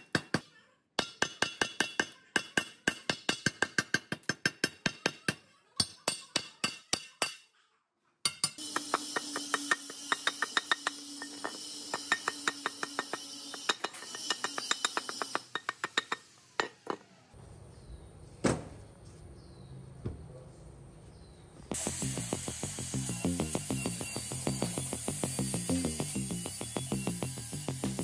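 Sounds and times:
hammer tapping chisel: 8.3s - 17.0s
steady hiss: 21.7s - 28.0s.

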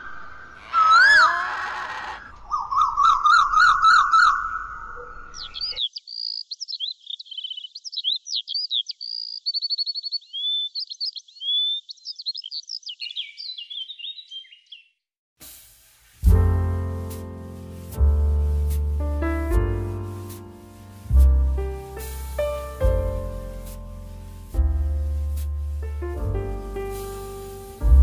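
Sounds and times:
songbird singing: 0.0s - 15.1s.

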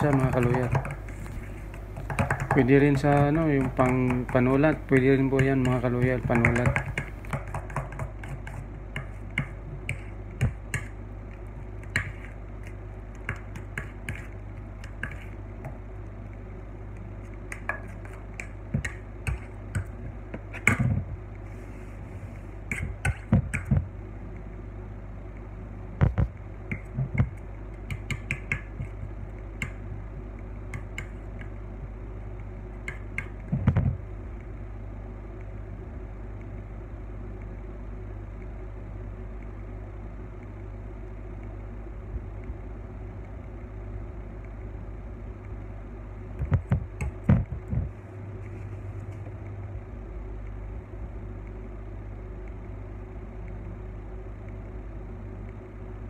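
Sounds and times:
knocks and taps on turntable: 0.0s - 1.0s, 2.0s - 10.9s
low hum of kitchen equipment: 0.0s - 56.0s.

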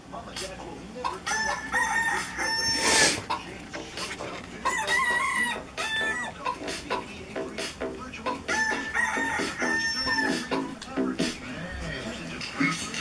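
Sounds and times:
techno song with chicken sounds: 0.1s - 13.0s.

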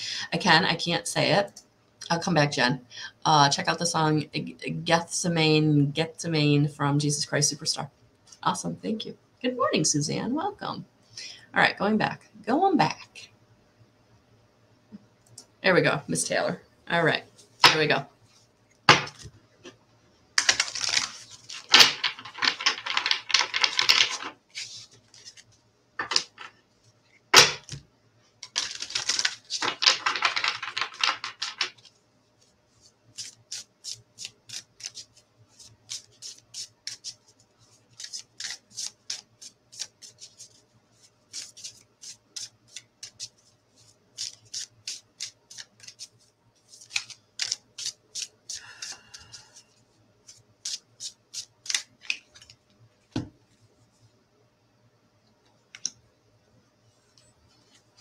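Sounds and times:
cards shuffling by hand: 18.9s - 19.8s, 20.4s - 26.6s, 28.4s - 49.6s, 50.2s - 53.2s.

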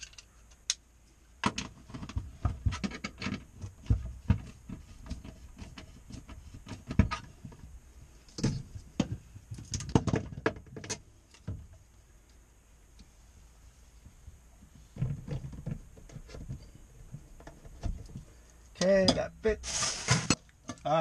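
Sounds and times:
clicks knocks and scrapes: 1.4s - 7.7s.

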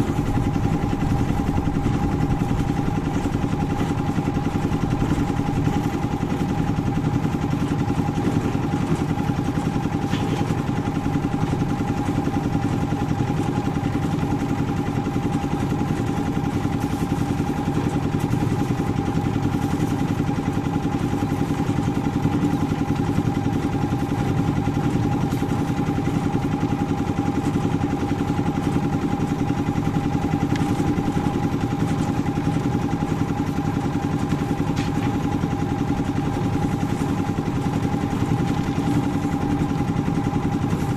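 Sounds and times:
steady whine: 0.0s - 12.9s
concrete mixer engine running: 0.0s - 40.9s.

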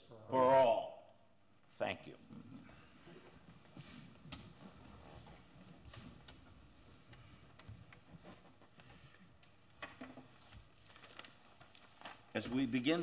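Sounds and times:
faint clicks and rustles: 2.4s - 12.6s.

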